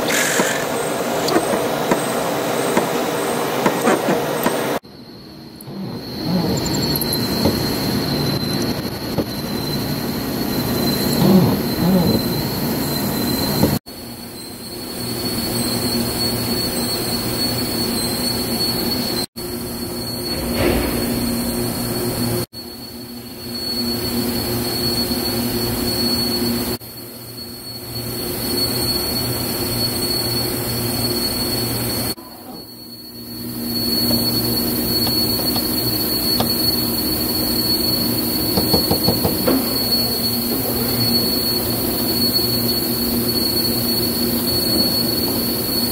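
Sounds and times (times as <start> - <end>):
drill cutting into steel: 0.0 - 2.8
machine spindle whine: 0.0 - 45.9.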